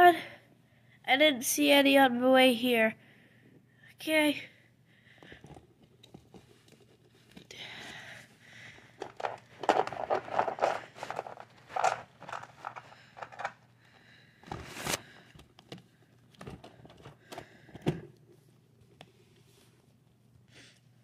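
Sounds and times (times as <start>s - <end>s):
plastic toy figures rustling: 5.2s - 7.5s, 8.8s - 13.8s, 14.4s - 20.0s.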